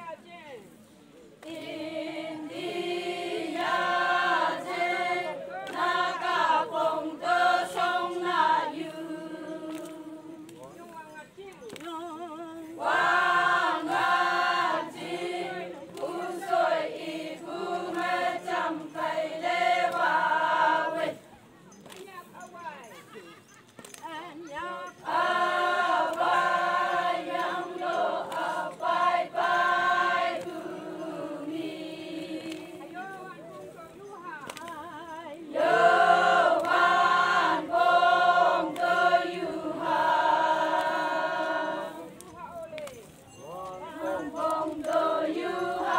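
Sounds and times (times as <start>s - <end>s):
men and women chanting song: 1.4s - 10.7s, 11.8s - 21.3s, 24.5s - 33.4s, 34.5s - 42.2s, 43.4s - 45.9s.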